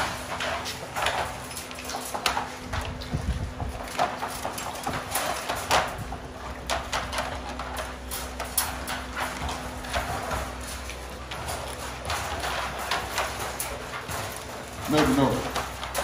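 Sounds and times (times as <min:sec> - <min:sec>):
wire crates rattling and clanking: 0:00.0 - 0:16.0.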